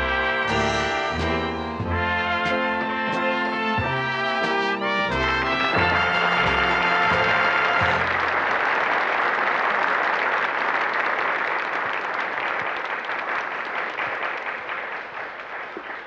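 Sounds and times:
brass fanfare chord: 0.0s - 8.4s
audience applauding: 0.0s - 16.0s.

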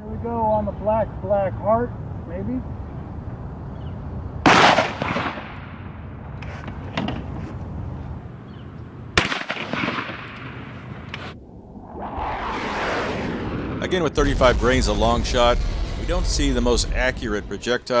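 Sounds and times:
shotgun blasts: 4.4s - 5.7s, 9.2s - 10.4s.

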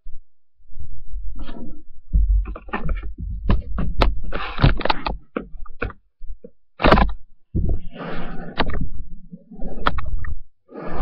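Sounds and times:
knocks and bumps on microphone: 2.1s - 5.9s.

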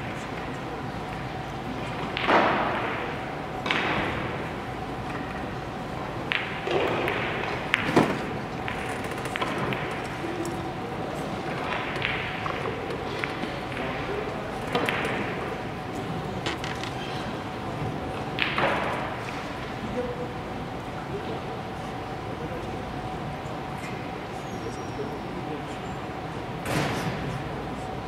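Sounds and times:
billiard balls clicking: 6.3s - 10.6s, 11.4s - 17.0s
faint chatter: 19.0s - 28.0s.

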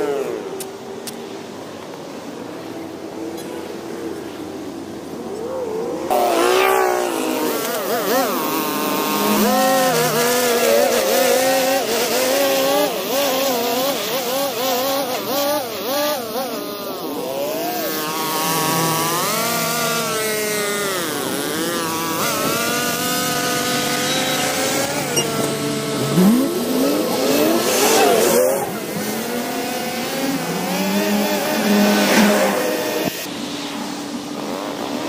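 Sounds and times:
string trimmer engine revving: 6.1s - 33.3s.

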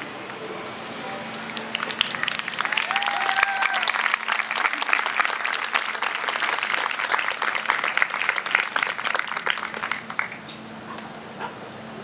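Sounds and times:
audience applauding: 1.5s - 10.5s.

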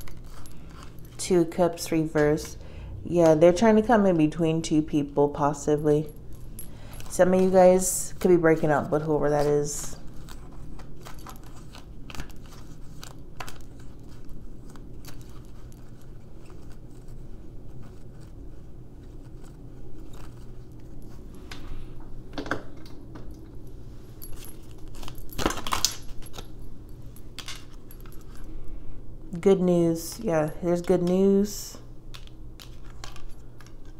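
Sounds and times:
faint low hum: 0.0s - 33.9s
small hard objects clicking and jingling: 24.2s - 28.6s.

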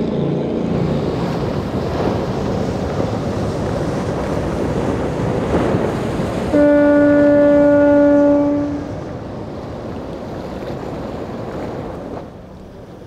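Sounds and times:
water rushing: 0.0s - 13.0s
wind: 0.0s - 13.0s
boat horn blast: 6.5s - 9.1s.

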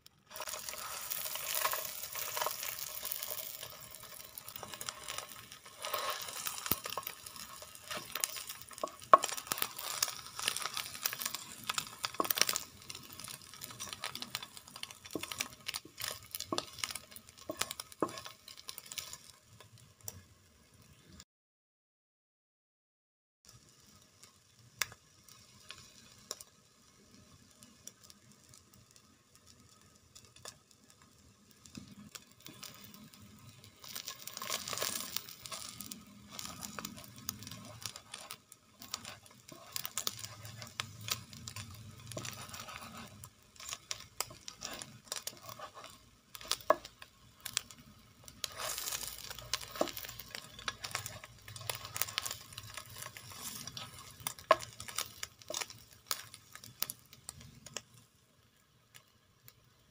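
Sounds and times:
food sizzling in oil: 0.0s - 21.2s, 23.5s - 59.7s
spatula scraping and knocking pan: 0.3s - 19.3s, 33.8s - 56.9s.

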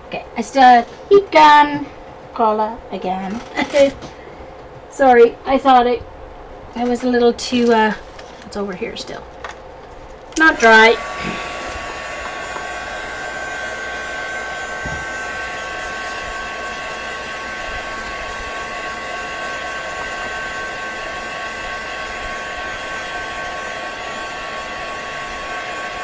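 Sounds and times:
heat gun blowing air: 10.4s - 26.0s.

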